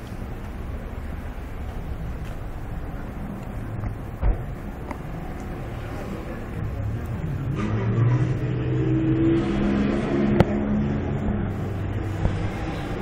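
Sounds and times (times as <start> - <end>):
passing vehicle engine: 5.1 - 13.0.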